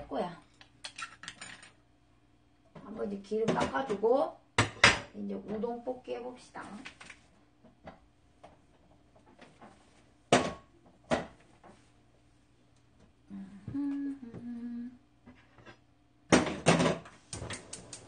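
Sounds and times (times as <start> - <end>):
woman humming: 13.2 - 15.1.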